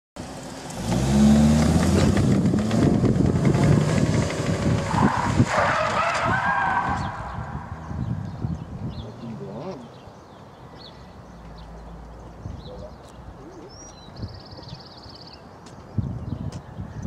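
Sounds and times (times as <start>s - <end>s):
car engine accelerating hard: 0.2s - 8.1s
tires squealing: 0.8s - 8.0s.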